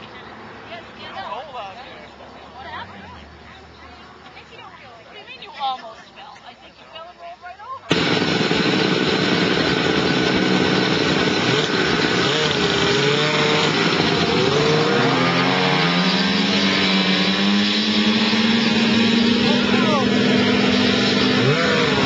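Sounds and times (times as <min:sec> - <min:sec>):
snowmobile engine revving: 0:07.9 - 0:22.0.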